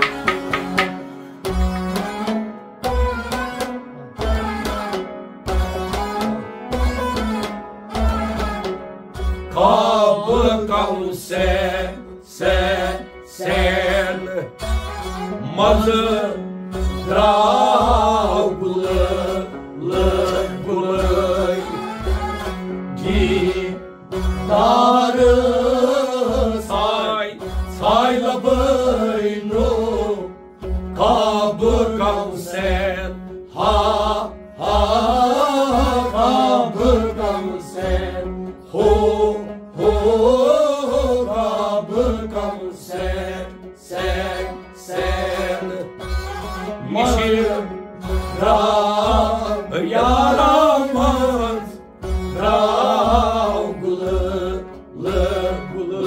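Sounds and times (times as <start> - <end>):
clay pot drum beat: 0.0 - 16.3, 17.0 - 55.6
man singing: 9.5 - 14.7, 15.4 - 22.1, 22.9 - 30.4, 31.0 - 46.0, 46.8 - 56.0.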